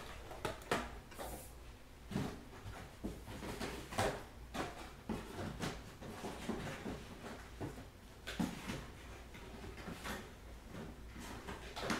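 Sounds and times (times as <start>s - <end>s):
cards tapping and rustling: 0.0s - 1.3s.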